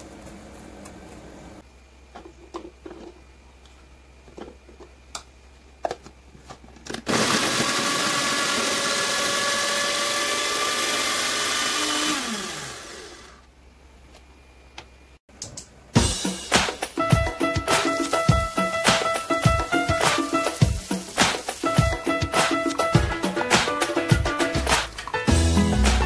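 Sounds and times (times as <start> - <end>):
food processor motor chopping: 7.0 - 13.4.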